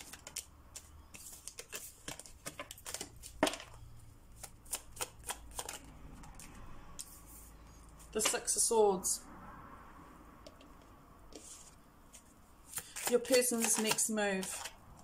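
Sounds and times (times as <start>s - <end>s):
cards being shuffled: 0.0s - 3.8s, 4.4s - 7.2s, 11.4s - 14.8s.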